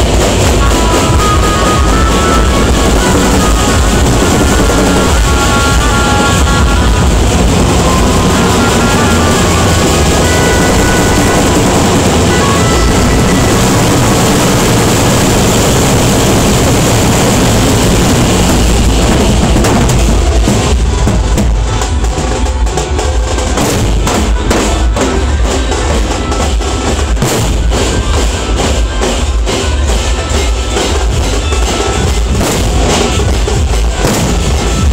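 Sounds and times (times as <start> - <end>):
barrel drums pounding: 0.0 - 34.9.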